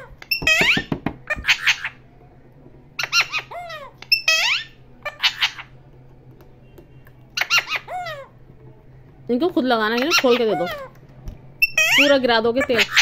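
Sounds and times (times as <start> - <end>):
parakeets squawking shrilly: 0.0 - 2.0, 3.0 - 5.8, 7.4 - 8.4, 9.9 - 10.9, 11.6 - 13.0.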